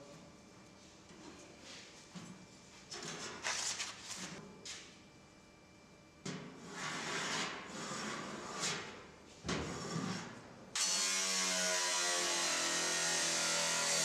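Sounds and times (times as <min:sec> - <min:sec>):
angle grinder cutting metal: 0:10.8 - 0:14.0.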